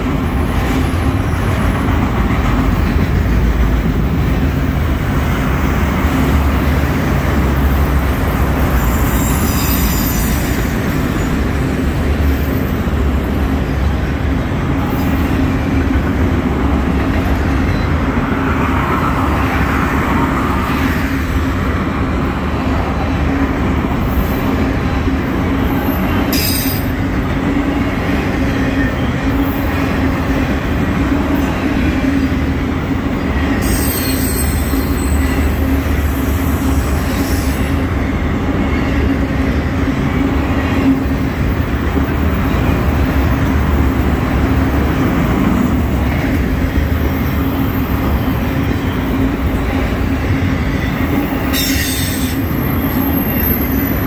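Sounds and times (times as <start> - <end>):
train wheels rumbling on rails: 0.0 - 54.0
high-pitched wheel squeals: 8.8 - 10.7, 33.6 - 35.6.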